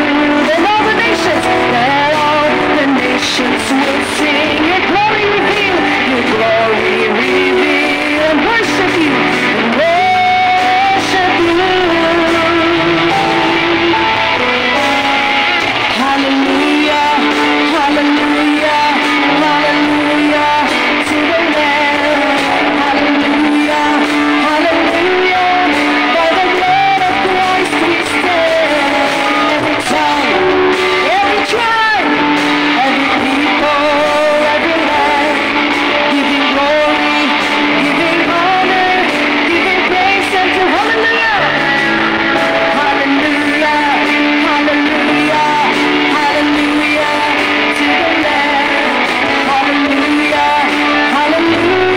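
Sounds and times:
bass guitar: 0:00.0 - 0:51.9
drum kit: 0:00.0 - 0:51.9
electric guitar: 0:00.0 - 0:51.9
keyboard: 0:00.0 - 0:51.9
person singing into microphone: 0:00.0 - 0:51.9.

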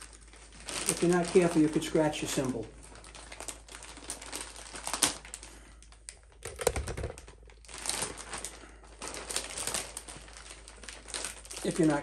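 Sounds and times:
plastic bag crinkling: 0:00.0 - 0:12.0.

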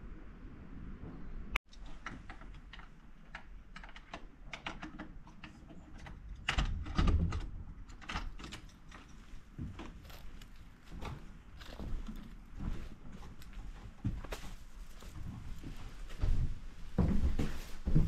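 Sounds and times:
door lock clicks and rattles: 0:02.0 - 0:09.1.

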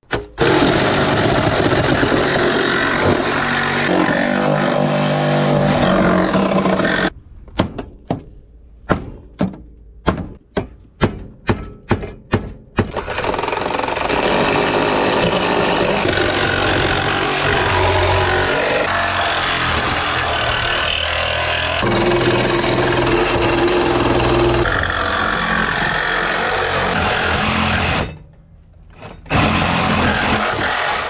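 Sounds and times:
reciprocating saw cutting metal: 0:00.4 - 0:07.1, 0:12.9 - 0:28.2, 0:29.2 - 0:31.0.

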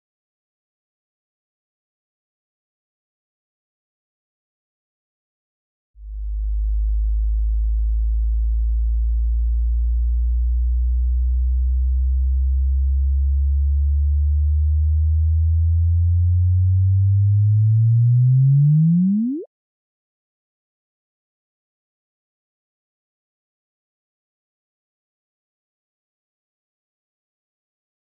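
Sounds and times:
rising pure tone chirp: 0:18.4 - 0:19.5.

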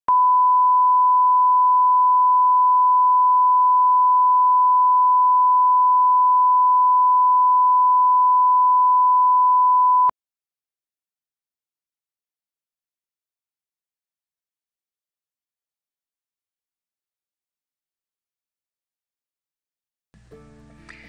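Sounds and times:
sine-wave test tone: 0:00.1 - 0:10.1.

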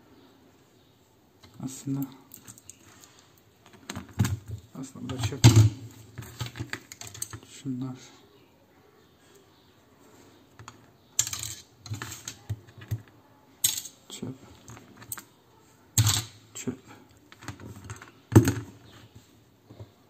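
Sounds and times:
small parts clicking and knocking: 0:01.4 - 0:07.5, 0:10.6 - 0:15.4, 0:16.0 - 0:16.4.

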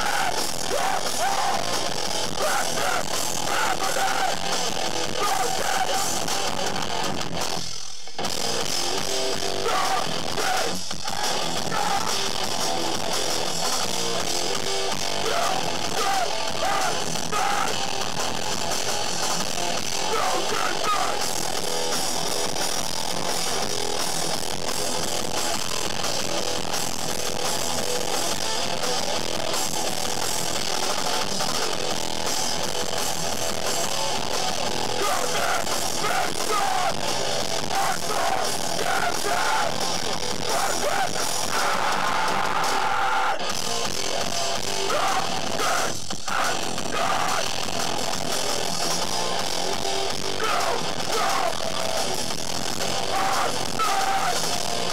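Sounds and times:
shouted vocals: 0:00.0 - 0:06.6, 0:09.4 - 0:12.5, 0:14.8 - 0:18.2, 0:19.9 - 0:21.4, 0:34.7 - 0:43.5, 0:44.6 - 0:47.8, 0:50.0 - 0:52.1, 0:52.8 - 0:54.9
hardcore band playing live: 0:00.0 - 0:54.9.

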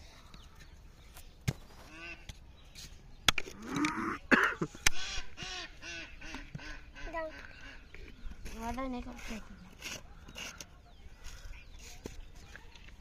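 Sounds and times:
ducks quacking: 0:03.6 - 0:10.5.

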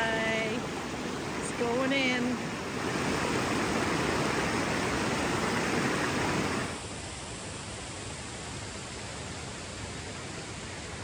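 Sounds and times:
river water rushing over rapids: 0:00.0 - 0:08.1.

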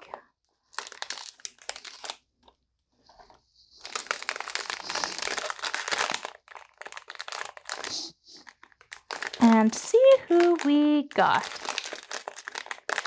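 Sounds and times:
foil bag crinkling: 0:00.0 - 0:02.3, 0:03.0 - 0:13.0.

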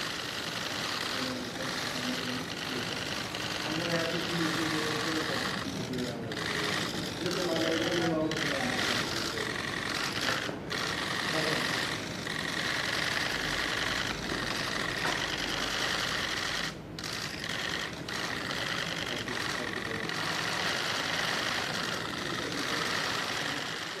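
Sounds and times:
camera shutters clicking rapidly: 0:00.0 - 0:24.0.

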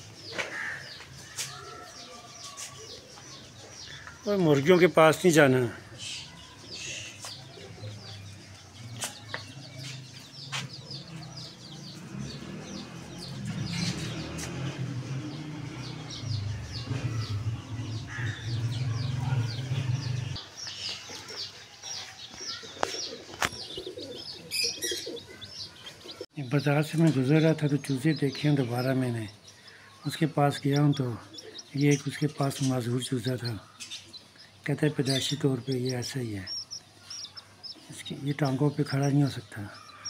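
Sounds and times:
birds chirping: 0:00.0 - 0:40.0
pigeon cooing: 0:22.5 - 0:26.2.

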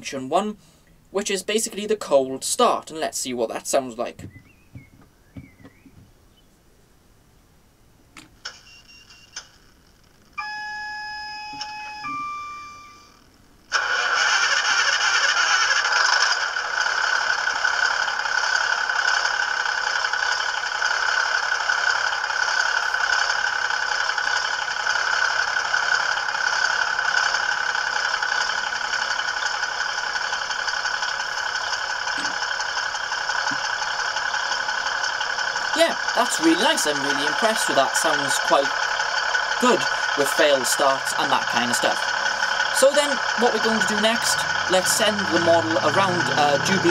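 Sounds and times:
model diesel engine idling: 0:13.8 - 0:46.9.

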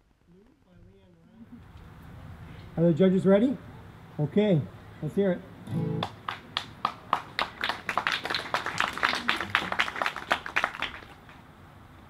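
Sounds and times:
small audience clapping: 0:06.0 - 0:11.4.

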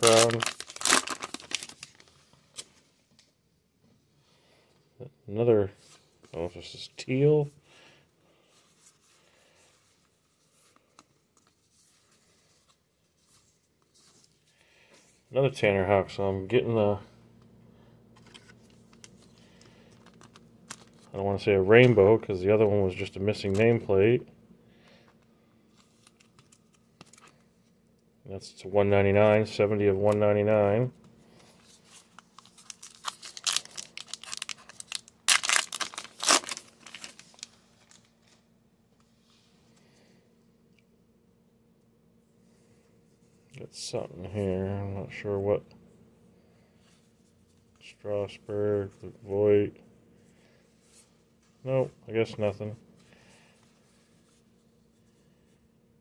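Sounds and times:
foil wrapper tearing and crinkling: 0:00.0 - 0:02.1, 0:32.3 - 0:38.0
cards rustling: 0:00.0 - 0:02.8, 0:18.2 - 0:21.1, 0:25.7 - 0:27.7, 0:31.3 - 0:38.4.

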